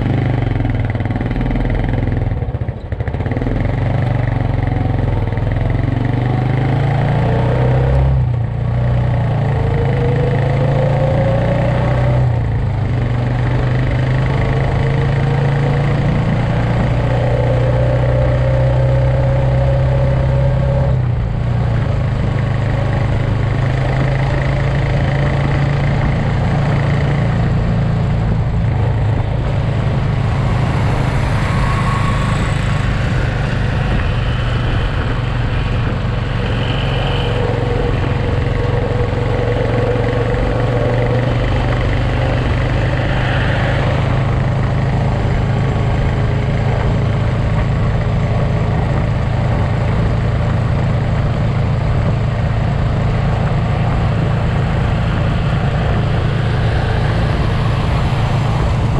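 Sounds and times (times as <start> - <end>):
motorcycle engine cruising: 0.0 - 58.9
wind and road noise: 0.0 - 58.9
faint whine: 22.6 - 50.9.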